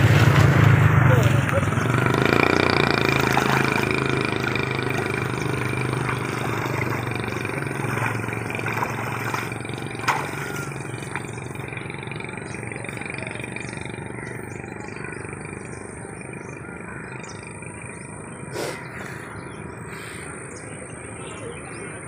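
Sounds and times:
water splashing and sloshing: 0.0 - 2.2, 2.8 - 12.6.

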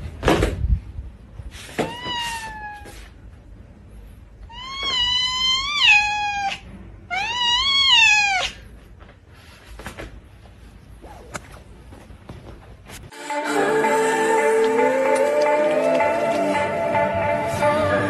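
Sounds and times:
cat meowing: 1.8 - 3.2, 4.5 - 8.7.

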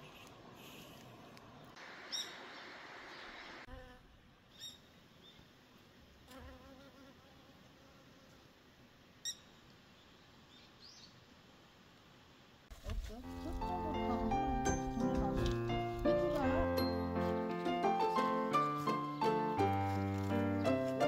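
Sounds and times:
flying insect buzzing: 3.6 - 4.2, 6.2 - 8.4.

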